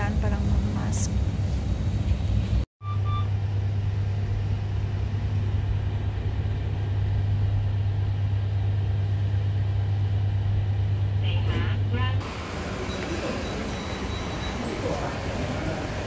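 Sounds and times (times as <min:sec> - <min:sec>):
low machine hum: 0:00.0 - 0:16.0
short electronic beep: 0:02.8 - 0:03.3.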